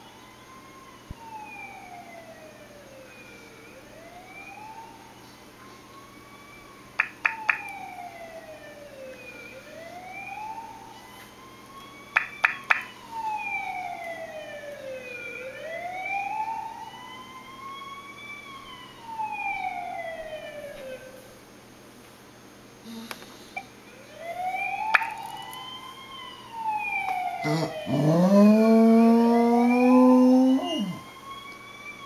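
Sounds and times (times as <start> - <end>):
siren wailing: 0.0 - 21.4, 23.8 - 32.0
dog howling: 27.4 - 31.1.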